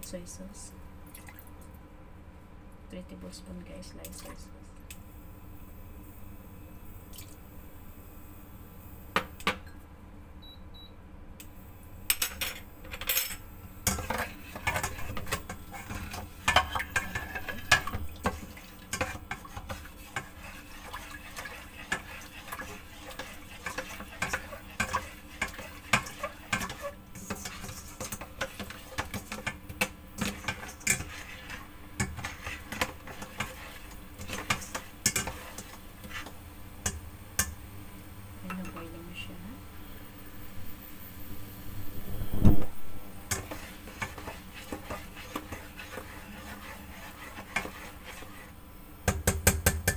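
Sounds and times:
spatula scraping a metal pot: 0:13.8 - 0:36.4, 0:43.3 - 0:48.6.

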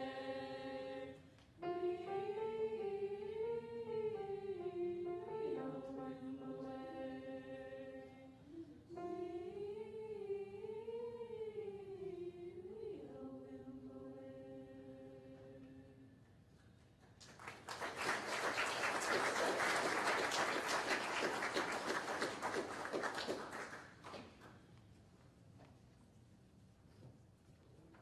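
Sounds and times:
choir singing held chord: 0:00.0 - 0:16.0
audience applauding: 0:17.2 - 0:24.4.

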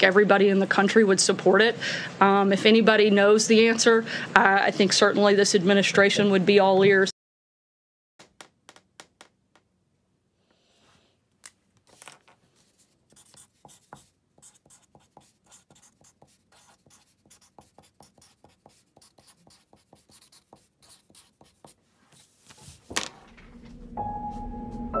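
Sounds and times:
marker knocking on desk: 0:08.2 - 0:09.7
marker scratching on paper: 0:12.6 - 0:22.9.

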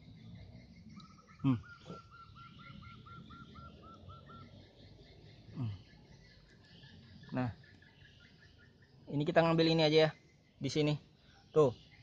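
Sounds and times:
bird with higher notes: 0:00.8 - 0:04.8.

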